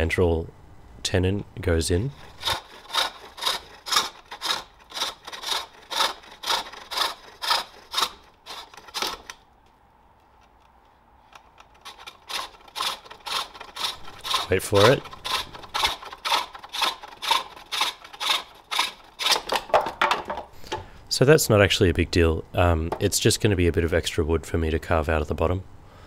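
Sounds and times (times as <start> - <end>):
hook tool cutting green wood: 2.1 - 9.4, 10.4 - 20.4.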